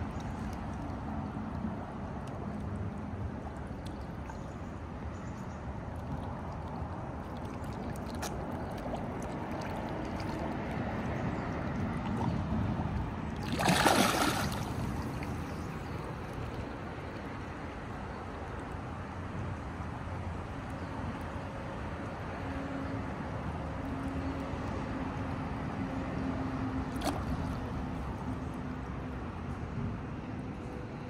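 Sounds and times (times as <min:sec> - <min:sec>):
water gurgling and sloshing: 0:00.0 - 0:20.3, 0:23.4 - 0:29.6
water splash: 0:07.2 - 0:11.0, 0:11.8 - 0:16.0, 0:26.9 - 0:27.6.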